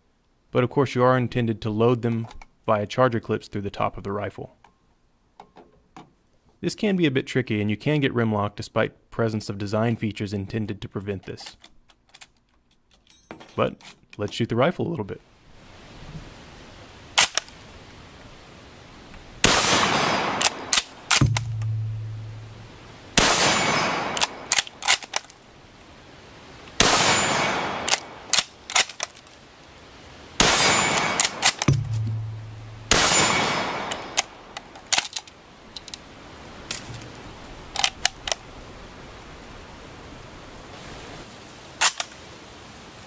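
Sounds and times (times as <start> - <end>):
rifle bolt metallic clicks: 11.4 - 13.1, 17.2 - 17.6, 20.3 - 21.8, 24.1 - 25.4, 27.8 - 29.4, 30.8 - 32.1, 33.0 - 36.0, 37.7 - 38.4, 41.8 - 42.1
rifle shots ringing out: 19.4 - 21.9, 23.2 - 25.0, 26.8 - 28.9, 30.4 - 34.4.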